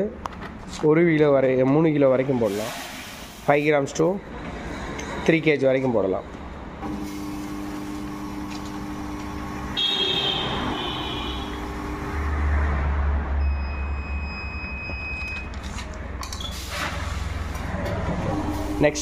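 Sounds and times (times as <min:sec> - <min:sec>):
high buzzer beep: 0:09.8 - 0:11.8, 0:13.4 - 0:15.5.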